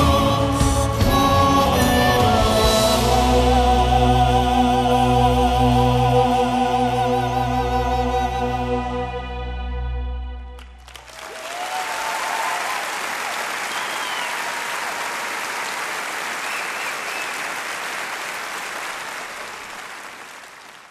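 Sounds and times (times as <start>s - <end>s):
audience applause: 10.7s - 20.9s.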